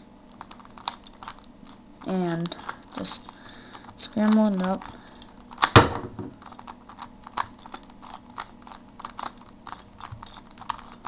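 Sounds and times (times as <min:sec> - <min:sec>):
puzzle cube layers clicking: 0:04.0 - 0:05.8, 0:06.4 - 0:11.0
loud knock: 0:05.8 - 0:06.3.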